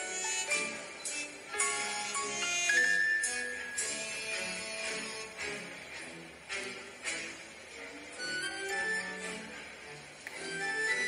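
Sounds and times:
light music of short stepping notes: 0.0 - 11.0.

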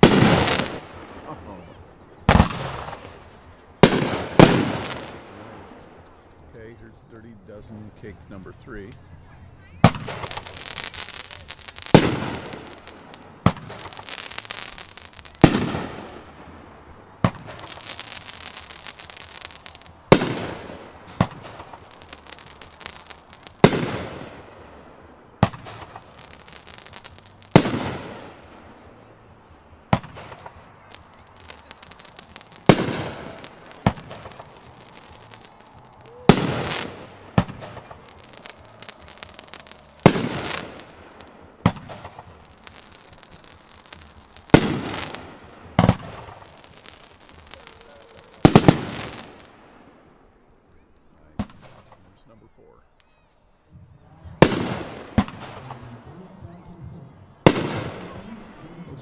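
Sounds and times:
firework bangs with rumble: 0.0 - 1.3, 2.3 - 3.2, 3.8 - 5.4, 9.8 - 24.8, 25.4 - 28.7, 29.9 - 49.5, 54.4 - 55.9, 57.4 - 58.2
smaller sharp firework bang: 0.0 - 1.4, 2.3 - 3.2.

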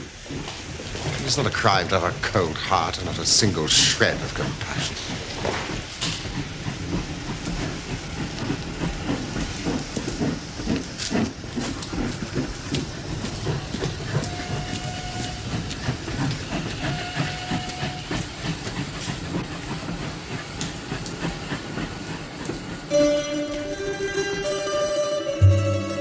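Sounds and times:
train wheels clacking on rails: 0.0 - 26.0
plucked string music: 22.9 - 26.0.

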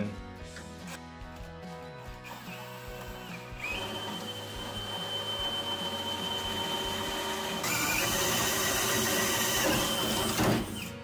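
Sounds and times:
cordless drill boring sheet metal: 2.2 - 11.0.

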